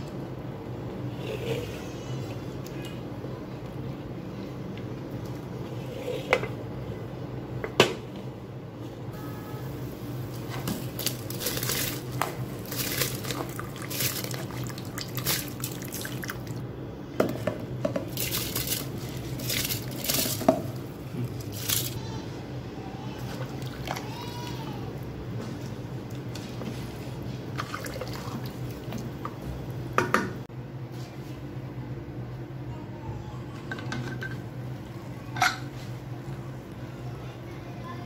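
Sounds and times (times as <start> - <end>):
wooden spoon stirring in pot: 10.3 - 16.6.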